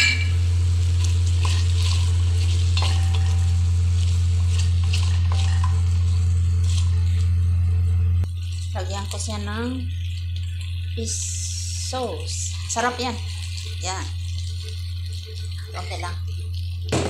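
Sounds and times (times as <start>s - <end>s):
loud low hum: 0.0s - 12.8s
chicken sizzling in a pot: 0.0s - 17.0s
spatula scraping a pot: 1.0s - 5.8s.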